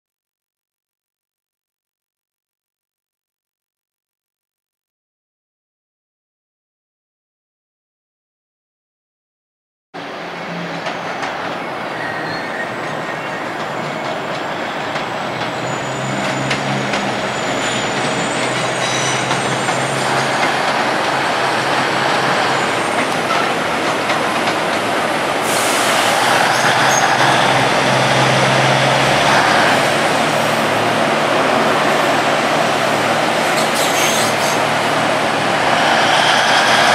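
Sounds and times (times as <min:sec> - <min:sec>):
diesel train engine humming: 0:10.0 - 0:36.9
wheels squealing on track: 0:10.4 - 0:20.9, 0:25.5 - 0:29.9, 0:33.5 - 0:34.8.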